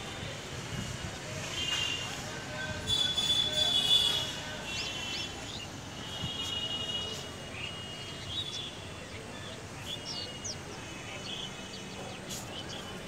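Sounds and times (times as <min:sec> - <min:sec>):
outdoor background noise: 0:00.0 - 0:13.0
small birds chirping: 0:04.0 - 0:13.0.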